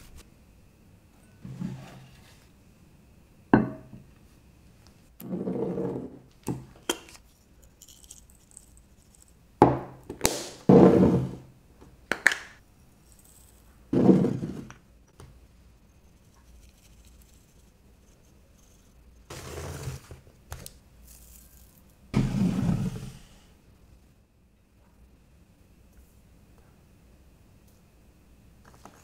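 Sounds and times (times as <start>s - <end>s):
dried herbs rattling into bowl: 7.6s - 9.4s, 21.0s - 21.8s
plastic caps clicking: 12.1s - 12.5s.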